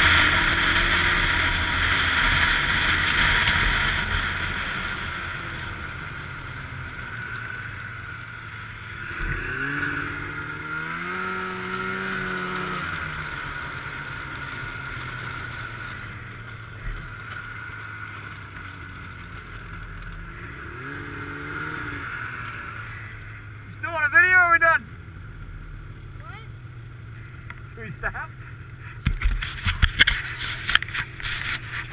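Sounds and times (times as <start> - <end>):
snowmobile engine revving: 0.0 - 31.9
wind noise on camera: 29.0 - 31.9.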